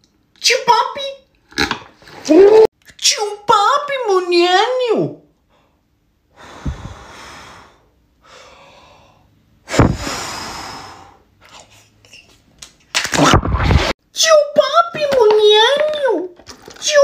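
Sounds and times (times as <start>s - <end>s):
man breathing out hard: 6.3s - 11.3s.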